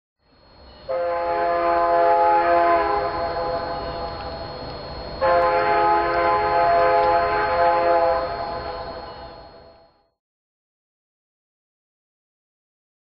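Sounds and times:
locomotive air horn blasts: 0:00.9 - 0:04.4, 0:05.2 - 0:09.9.

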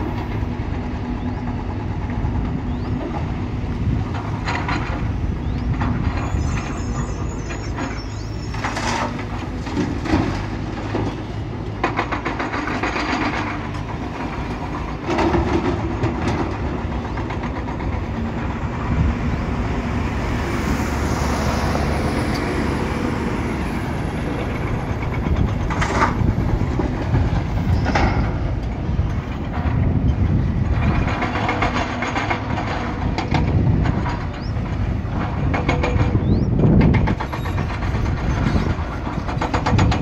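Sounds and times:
excavator metal clanks: 0:00.0 - 0:19.6, 0:23.9 - 0:40.0
diesel engine running: 0:00.0 - 0:40.0.

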